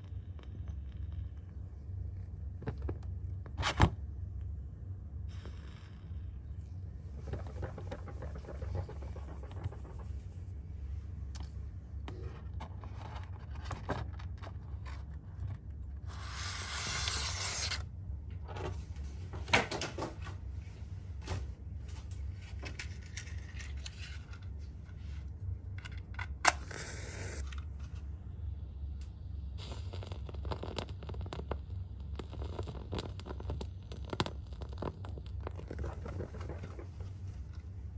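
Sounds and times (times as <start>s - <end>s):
steady low hum: 0.0s - 37.9s
match striking and flaring: 16.1s - 17.9s.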